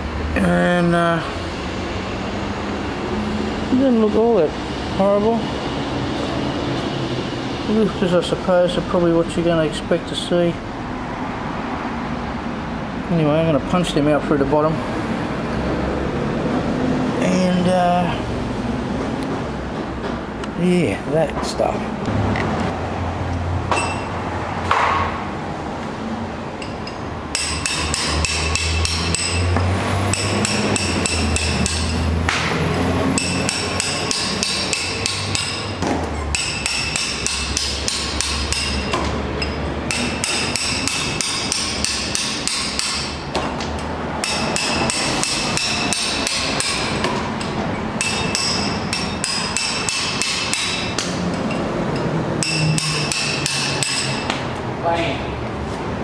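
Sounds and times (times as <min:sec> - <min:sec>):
hammer striking metal punch: 0:23.7 - 0:25.2, 0:26.6 - 0:43.6, 0:44.2 - 0:54.4.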